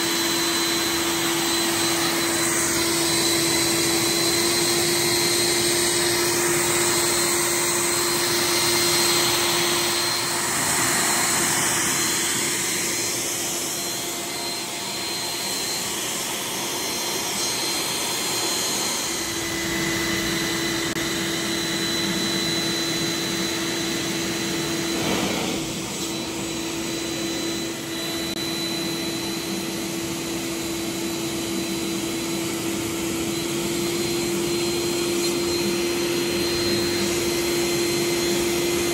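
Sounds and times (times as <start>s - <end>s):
vacuum motor rushing: 0.0s - 38.9s
faint high whine: 0.4s - 29.7s.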